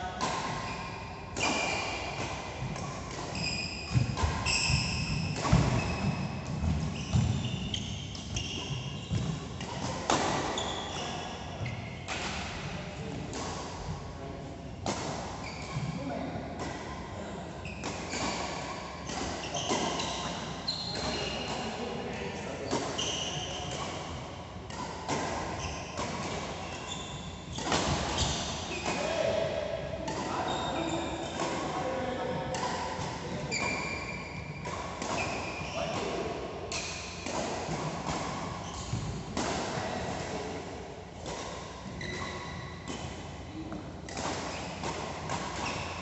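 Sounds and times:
sneaker squeaks: 0:00.2 - 0:12.4, 0:15.4 - 0:16.9, 0:17.6 - 0:40.5, 0:41.2 - 0:46.0
racket striking shuttlecock: 0:01.3 - 0:07.4, 0:24.7 - 0:26.8, 0:27.5 - 0:30.4, 0:34.6 - 0:43.3, 0:44.0 - 0:46.0.

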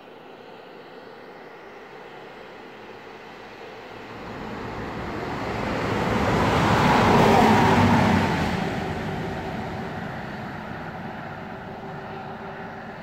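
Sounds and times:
vehicle passing at speed: 0:04.0 - 0:13.0.

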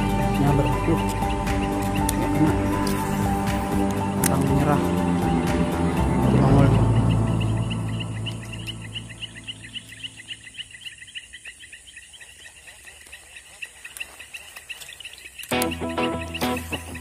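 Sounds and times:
background music: 0:00.0 - 0:10.7, 0:15.5 - 0:17.0.

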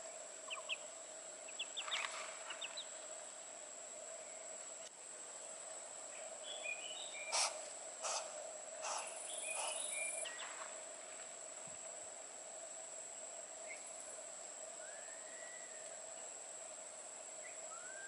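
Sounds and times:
bird chirps: 0:00.5 - 0:00.8, 0:08.8 - 0:10.5.

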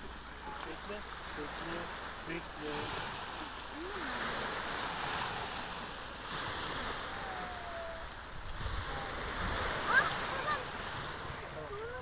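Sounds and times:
sea surf washing on shore: 0:00.0 - 0:12.0
wind on microphone: 0:03.8 - 0:12.0.

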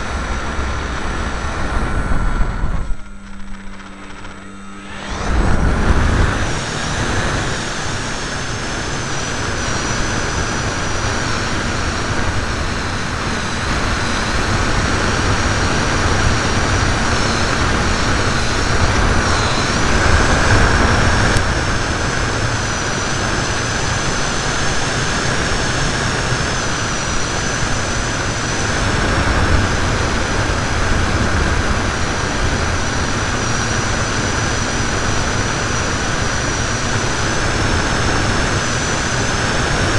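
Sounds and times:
electric motor whine: 0:00.0 - 0:39.9
wind rush and rumble: 0:00.0 - 0:39.9.

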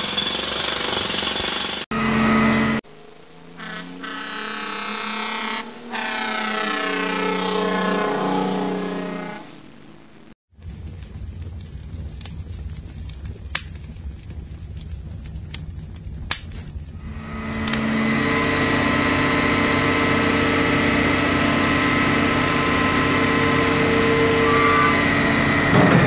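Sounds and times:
fire crackling and popping: 0:10.5 - 0:17.0
diesel truck engine running: 0:17.0 - 0:26.0.

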